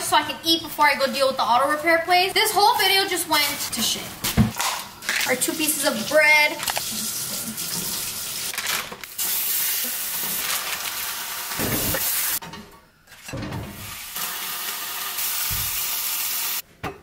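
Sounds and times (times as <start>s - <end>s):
food sizzling in a frying pan: 9.2s - 12.4s, 14.2s - 16.6s.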